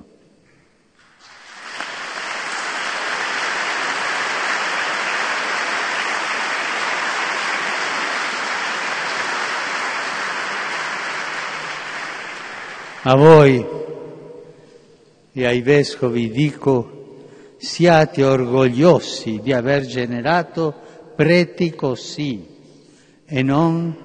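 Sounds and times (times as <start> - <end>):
audience applauding: 1.0 - 13.3.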